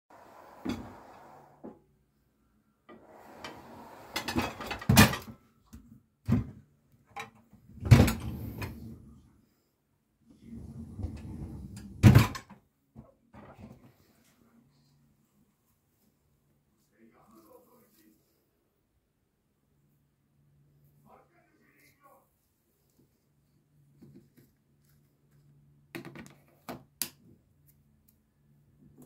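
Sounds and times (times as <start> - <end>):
dishwasher rack sliding: 0.1 - 1.6, 3.0 - 5.3.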